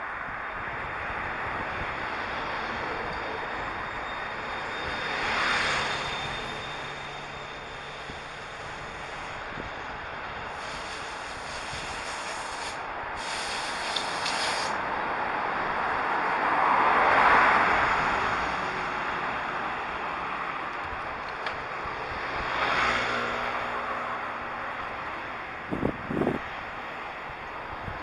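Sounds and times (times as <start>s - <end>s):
road traffic: 0.0s - 28.0s
wind rushing: 9.3s - 15.8s, 25.6s - 26.6s.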